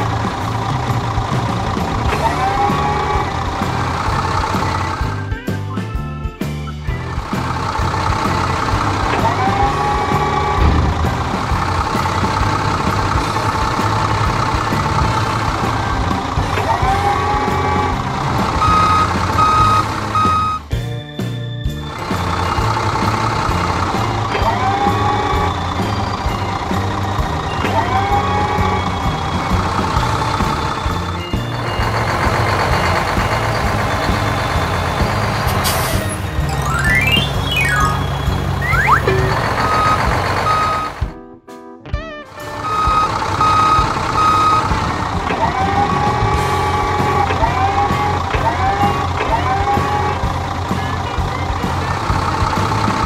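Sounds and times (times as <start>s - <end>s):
backhoe engine droning: 0.0s - 41.1s, 42.4s - 53.0s
rising engine whine: 0.0s - 41.1s, 42.4s - 53.0s
reversing alarm beeps: 18.6s - 20.7s, 36.5s - 41.0s, 42.5s - 44.8s.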